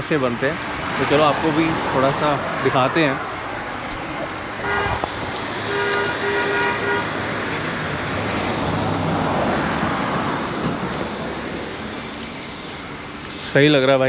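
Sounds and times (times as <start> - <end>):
road traffic: 0.0 - 14.0
vehicle passing by: 0.8 - 13.8
vehicle horn honking: 4.6 - 7.2.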